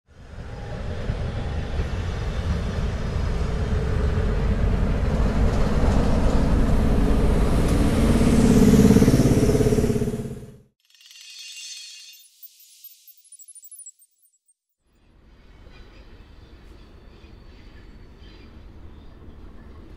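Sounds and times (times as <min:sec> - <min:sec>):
diesel locomotive engine rumbling: 0:00.1 - 0:10.6.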